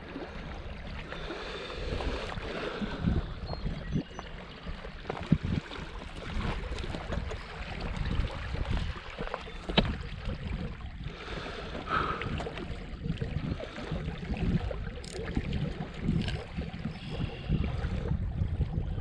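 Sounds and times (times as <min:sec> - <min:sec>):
wind buffeting microphone: 0:01.8 - 0:19.0.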